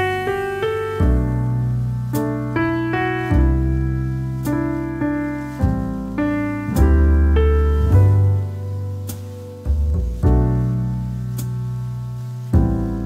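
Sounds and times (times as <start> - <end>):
deep bass notes: 0.0 - 13.0
piano melody and chords: 0.0 - 13.0.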